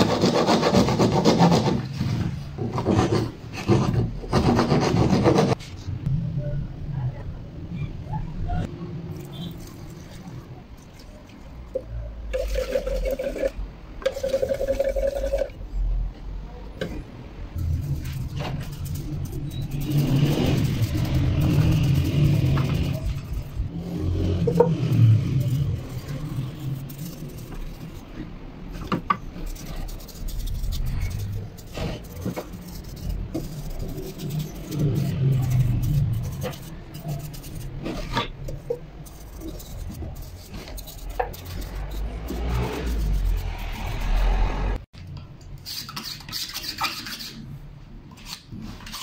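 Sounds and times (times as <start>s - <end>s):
stick stirring paint in tin: 12.4s - 15.6s, 17.6s - 23.6s, 24.4s - 28.2s, 28.8s - 44.0s.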